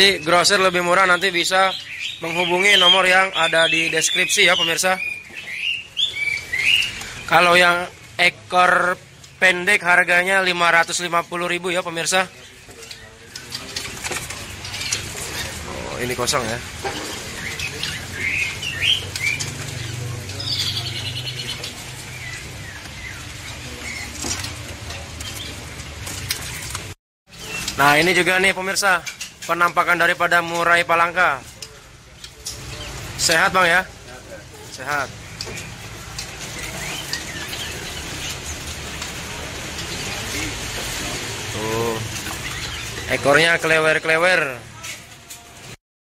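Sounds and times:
songbirds chirping: 0.0s - 45.8s
birds fluttering wings: 12.4s - 28.2s, 31.4s - 43.5s.

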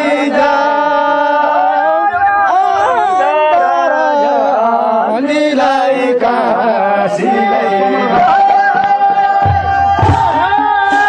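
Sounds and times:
person singing folk tune: 2.6s - 11.0s.

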